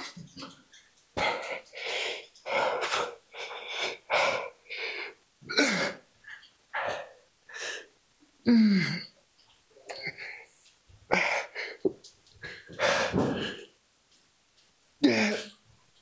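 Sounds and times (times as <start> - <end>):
man breathing hard in puffs: 1.2 - 5.2, 11.1 - 13.7
man grunting: 15.0 - 15.5.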